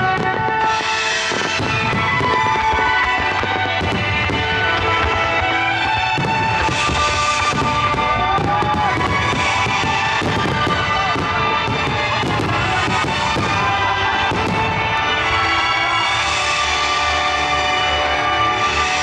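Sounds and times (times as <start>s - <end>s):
music with sustained tones: 0.0s - 19.0s.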